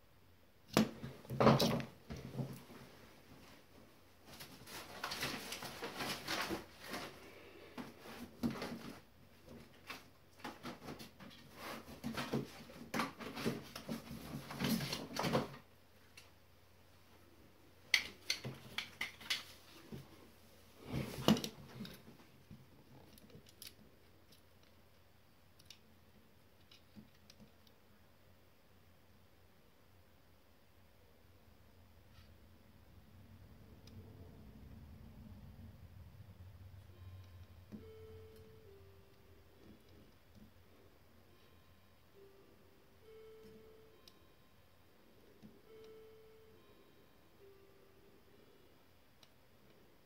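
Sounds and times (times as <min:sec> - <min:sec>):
rustling and scraping of parts: 0:01.0 - 0:16.4, 0:17.9 - 0:24.8.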